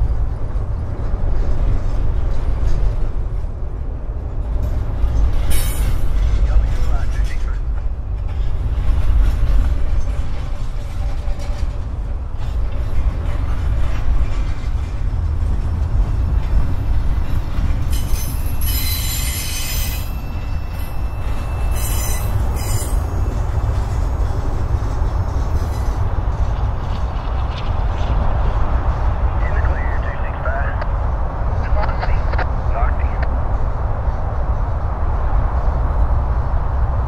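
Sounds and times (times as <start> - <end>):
freight train rumbling past: 0.0 - 37.0
high-pitched wheel squeals: 17.9 - 23.4.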